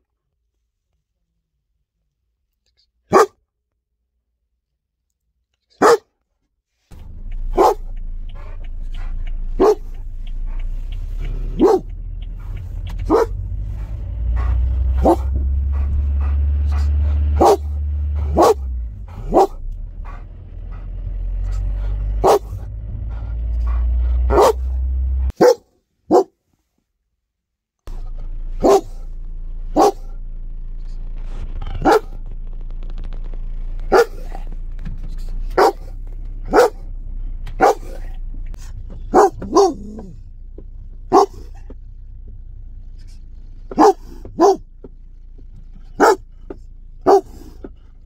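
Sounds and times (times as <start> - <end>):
dog barking: 3.1 - 3.4, 5.7 - 6.1, 7.4 - 26.4, 28.6 - 29.1, 29.7 - 30.2, 31.8 - 32.2, 33.9 - 34.5, 35.5 - 36.9, 37.5 - 38.2, 39.1 - 40.2, 41.1 - 41.7, 43.7 - 44.7, 46.0 - 46.3, 47.0 - 47.6
low rumble: 6.9 - 25.4, 27.9 - 48.0.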